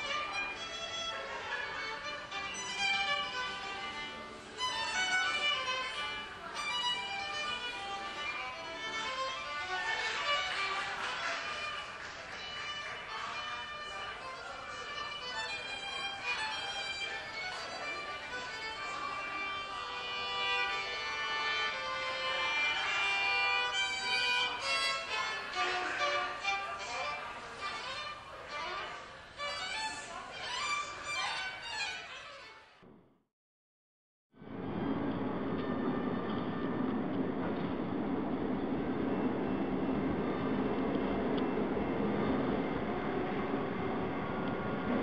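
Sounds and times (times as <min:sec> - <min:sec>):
solo violin melody: 0:00.0 - 0:32.8.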